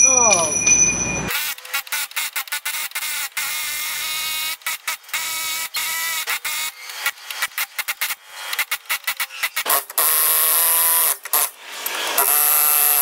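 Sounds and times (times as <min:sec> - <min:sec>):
metal ringing: 0:00.0 - 0:01.3.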